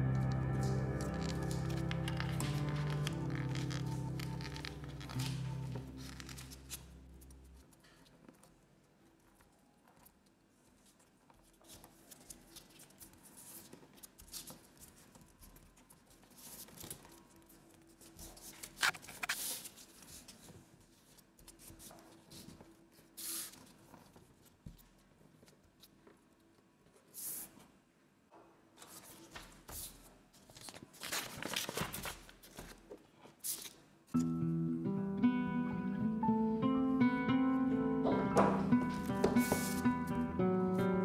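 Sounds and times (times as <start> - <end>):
background music: 0.0 - 7.6, 34.2 - 41.0
paper crinkles: 0.6 - 26.0, 28.8 - 33.8
paper rustling and folding: 0.6 - 26.2, 28.8 - 33.9.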